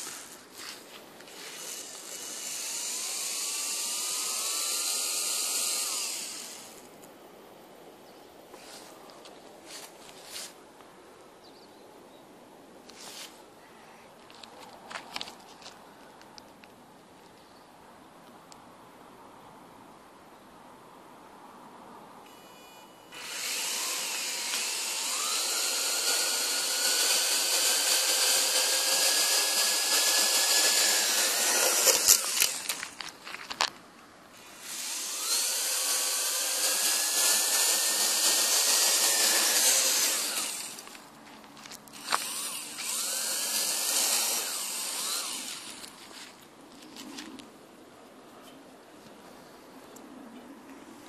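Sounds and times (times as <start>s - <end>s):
quadcopter motors whining: 0.0s - 0.3s, 1.2s - 6.9s, 22.3s - 32.9s, 34.4s - 41.0s, 41.9s - 45.9s
quadcopter crashing: 1.3s - 6.9s, 22.3s - 33.0s, 34.4s - 40.9s, 41.9s - 45.9s.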